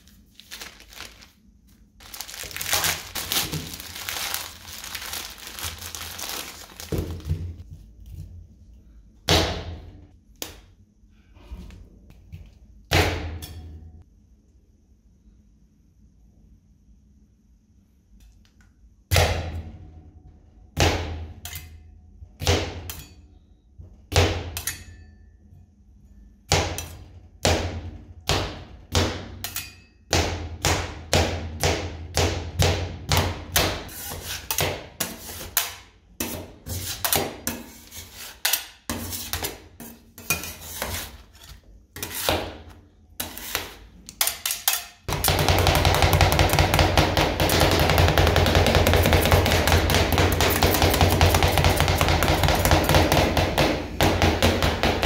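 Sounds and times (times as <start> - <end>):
metal spatulas clacking on plate: 44.1 - 45.0.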